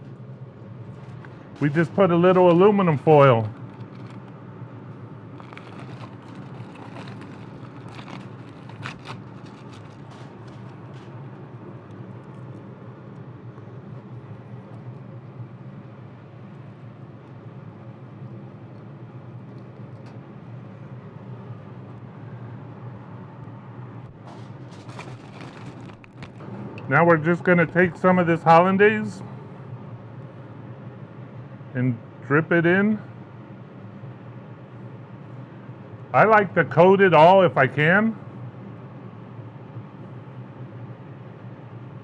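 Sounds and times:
gas burners rushing: 0.8 - 12.2, 24.0 - 29.6.

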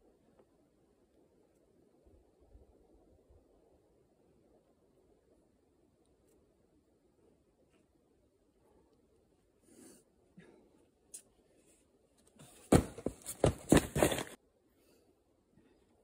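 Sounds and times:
person breathing: 8.6 - 11.8
thumps landing on crash pads: 12.7 - 14.3.

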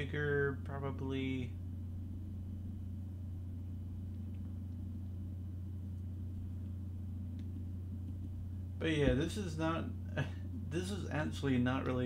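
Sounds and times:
low room tone hum: 0.0 - 12.0
faint clicks: 4.0 - 5.2, 5.9 - 8.4.

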